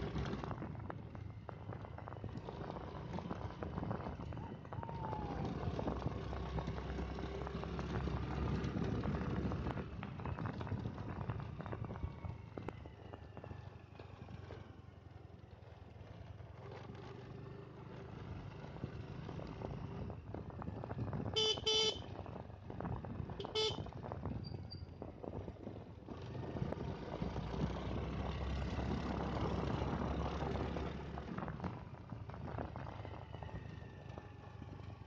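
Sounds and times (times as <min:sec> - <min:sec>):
wind noise: 0:00.0 - 0:13.1, 0:18.8 - 0:35.0
motorcycle engine running: 0:00.0 - 0:35.0
road noise: 0:00.0 - 0:35.0
horn beeps: 0:21.4 - 0:22.1, 0:23.4 - 0:23.8.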